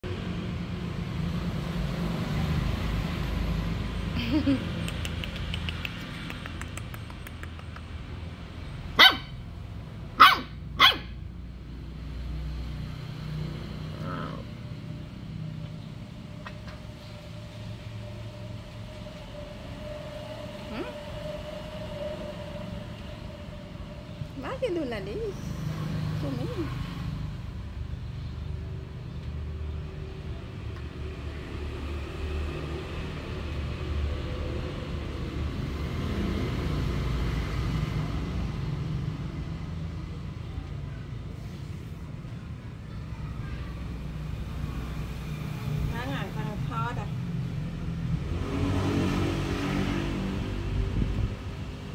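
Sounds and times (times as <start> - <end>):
dog barking: 9.0 - 9.4, 10.2 - 11.2.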